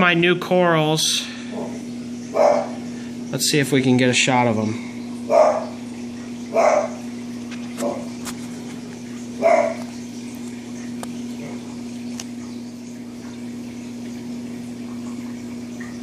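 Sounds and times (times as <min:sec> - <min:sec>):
dog barking: 0:02.3 - 0:02.8, 0:05.3 - 0:05.8, 0:06.5 - 0:07.0, 0:09.4 - 0:09.9.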